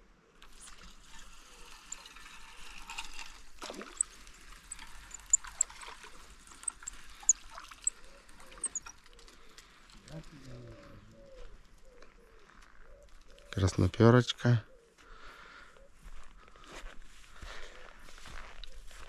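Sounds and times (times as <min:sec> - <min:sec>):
water pouring and trickling: 0:00.4 - 0:09.0
sharp little ticks: 0:03.8 - 0:09.6.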